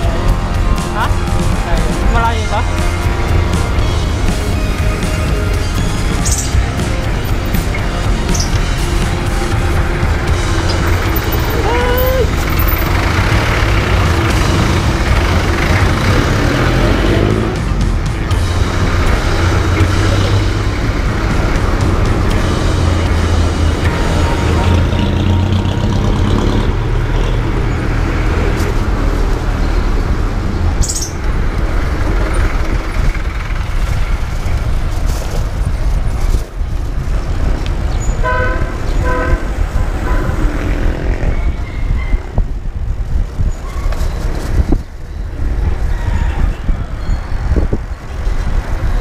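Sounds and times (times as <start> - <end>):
street traffic rumble: 0.0 - 49.0
vehicle horn toots: 38.2 - 40.4.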